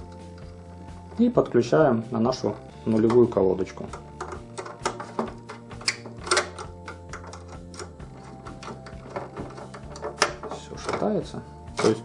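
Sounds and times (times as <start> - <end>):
soft background music: 0.0 - 12.0
screwdriver clicking and scraping metal: 2.5 - 12.0.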